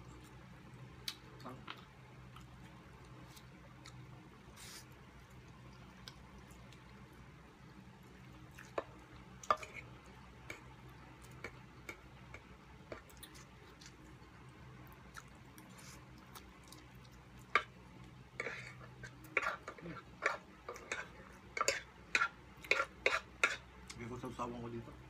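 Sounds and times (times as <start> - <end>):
faint low hum: 0.0 - 25.0.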